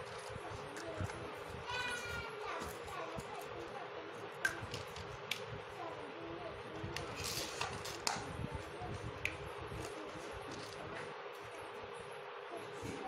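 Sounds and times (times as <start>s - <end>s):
background hum: 0.0s - 13.0s.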